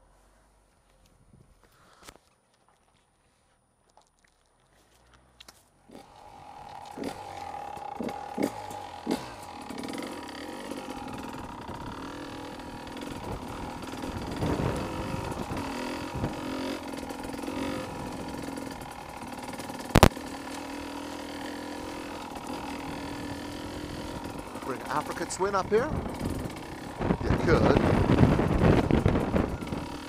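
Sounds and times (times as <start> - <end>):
two-stroke motorcycle engine running: 5.9 - 30.0.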